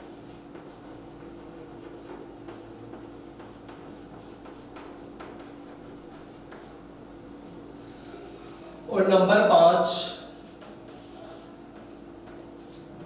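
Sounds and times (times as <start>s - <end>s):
chalk scratching on chalkboard: 0.0s - 6.9s, 10.3s - 13.0s
steady low hum: 0.0s - 13.0s.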